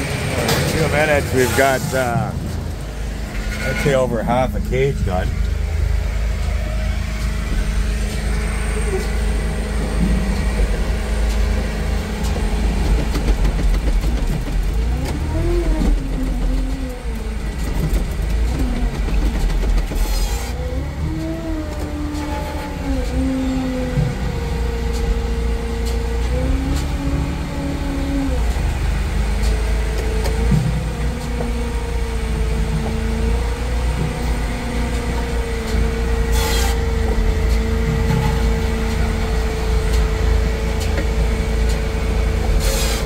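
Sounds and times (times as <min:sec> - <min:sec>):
loader engine running: 0:00.0 - 0:43.0
low machinery drone: 0:00.0 - 0:43.0.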